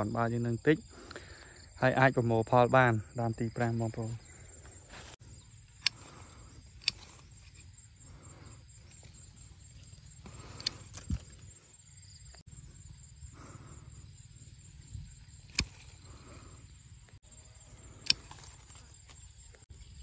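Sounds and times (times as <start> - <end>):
high insect drone: 0.0 - 20.0
pruning shears snipping: 6.8 - 7.7, 15.4 - 16.1, 18.0 - 19.2.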